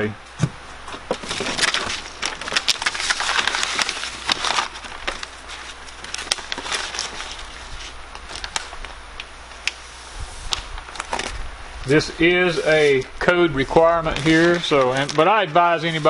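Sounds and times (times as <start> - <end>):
foil tape peeled and pressed: 1.2 - 8.9.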